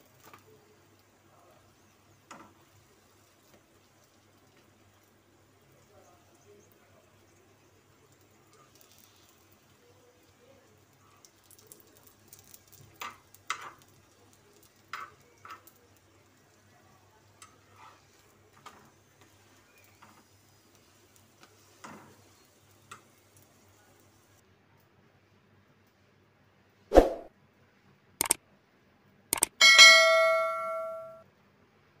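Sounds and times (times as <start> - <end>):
metal spatula scraping griddle: 17.6 - 18.9.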